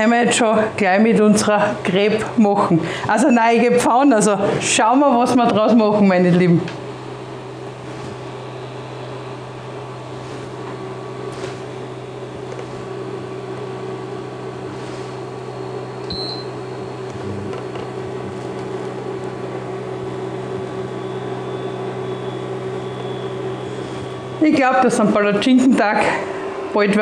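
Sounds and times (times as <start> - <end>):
electric hob fan humming: 0.0 - 27.0
short high beep: 16.1 - 16.5.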